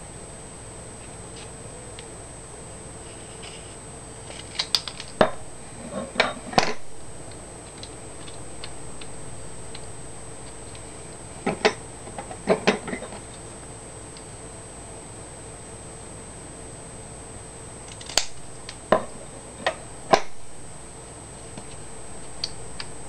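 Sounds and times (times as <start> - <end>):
scissors snipping paper: 17.9 - 18.4.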